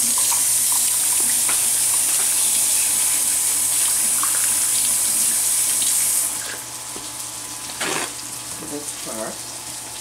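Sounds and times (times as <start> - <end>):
faucet running into steel sink: 0.0 - 9.3.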